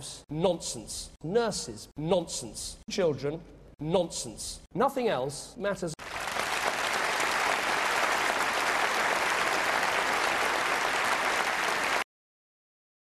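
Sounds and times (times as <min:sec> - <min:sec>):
large crowd applauding: 0:06.0 - 0:12.1.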